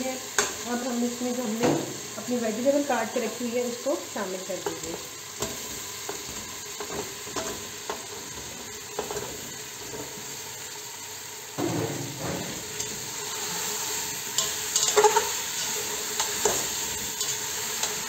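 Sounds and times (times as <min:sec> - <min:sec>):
vegetables sizzling in hot oil: 0:00.0 - 0:18.0
metal spatula scraping a pot: 0:14.3 - 0:18.0.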